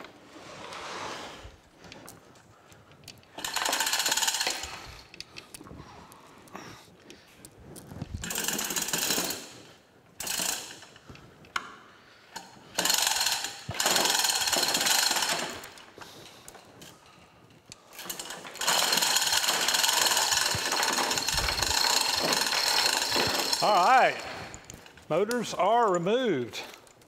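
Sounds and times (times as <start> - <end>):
metallic ratcheting clatter: 3.1 - 5.7, 7.8 - 11.0, 12.3 - 16.9, 17.9 - 27.0.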